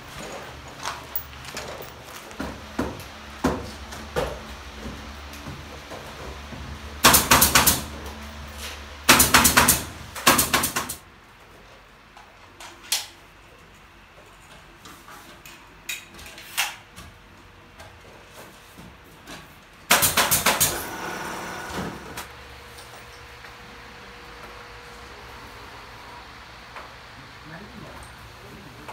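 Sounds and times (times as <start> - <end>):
pneumatic nail gun bangs: 7.0 - 7.9, 9.1 - 11.0, 19.9 - 21.1.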